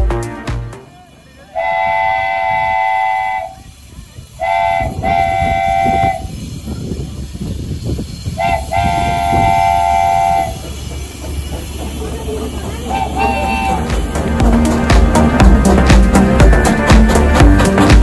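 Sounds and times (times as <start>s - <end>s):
steam locomotive whistle: 1.4s - 3.7s, 4.3s - 6.5s, 8.3s - 10.8s, 12.8s - 14.0s.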